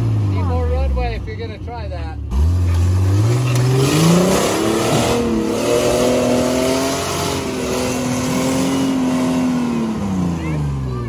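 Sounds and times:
engine revving hard: 2.3s - 11.0s.

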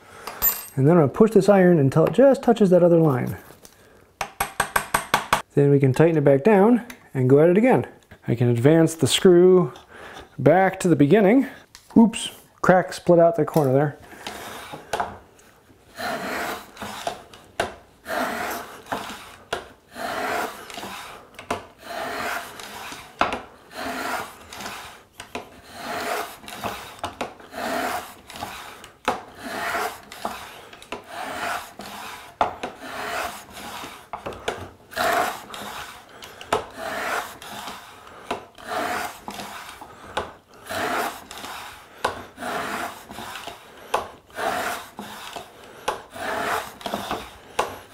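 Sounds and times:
hand plane scraping wood: 13.6s - 15.1s, 15.9s - 47.9s.

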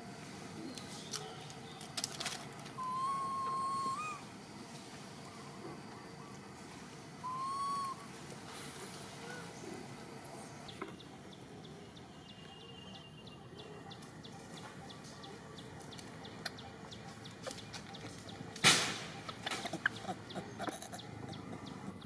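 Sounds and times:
short animal calls: 2.8s - 4.3s.

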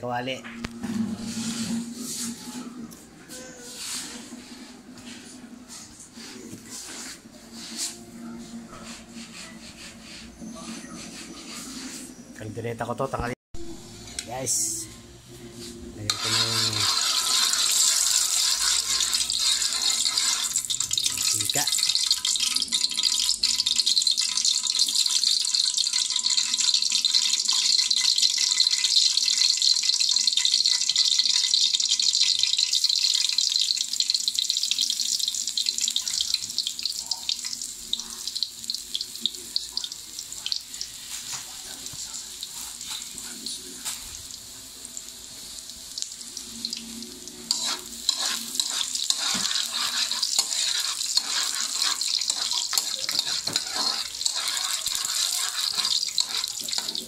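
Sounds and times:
metal spoon scraping a pan: 0.9s - 2.7s, 16.1s - 29.2s, 47.4s - 57.0s
oil hissing in a hot wok: 16.1s - 57.0s.

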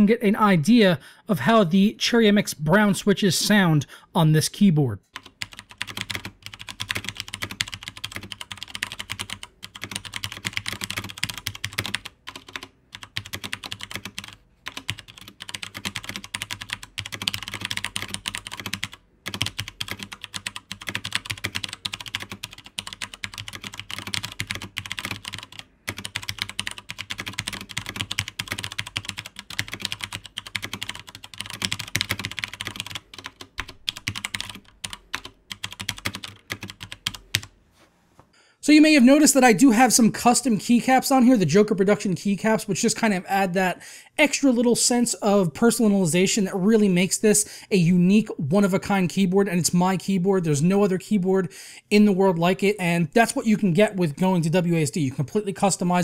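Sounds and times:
typing on mechanical keyboard: 5.2s - 37.5s.

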